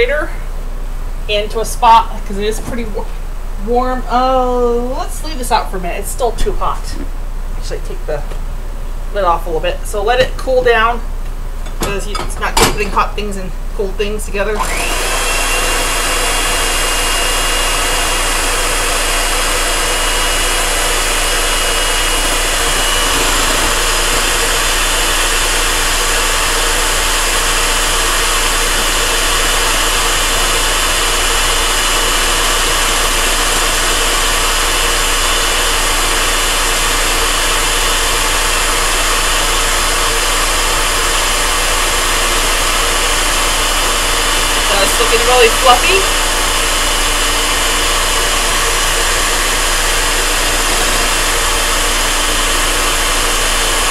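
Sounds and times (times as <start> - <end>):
electric hand mixer whipping eggs: 14.6 - 53.9.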